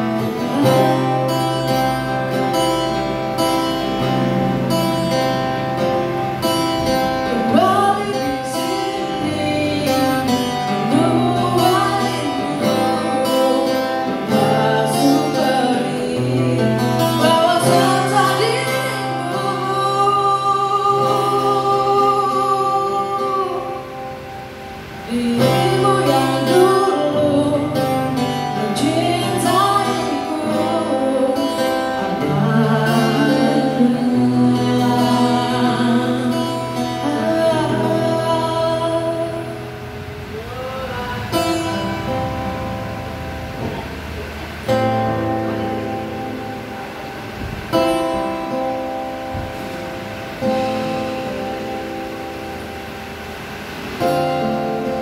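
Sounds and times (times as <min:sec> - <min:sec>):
strummed acoustic guitar: 0:00.0 - 0:55.0
man singing into microphone: 0:07.2 - 0:24.1, 0:25.0 - 0:42.1.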